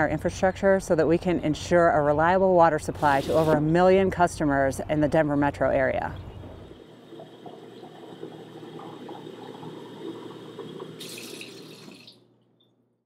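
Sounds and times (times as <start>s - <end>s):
water pouring into a glass: 6.5s - 12.3s.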